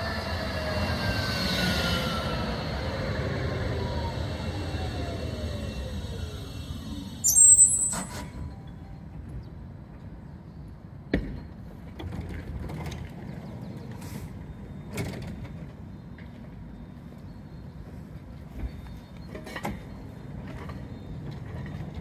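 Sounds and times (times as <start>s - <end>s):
tram brakes squealing: 0.0s - 9.2s, 14.0s - 22.0s
tram low rumble: 0.0s - 22.0s.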